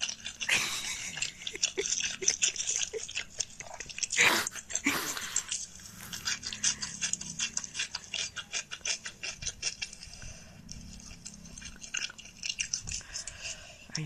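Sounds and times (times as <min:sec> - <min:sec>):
chewing and smacking through phone speaker: 0:00.0 - 0:14.0.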